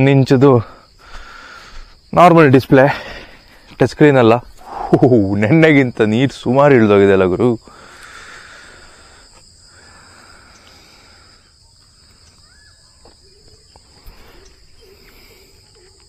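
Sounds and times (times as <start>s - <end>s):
high-pitched insect chorus: 0.0s - 16.0s.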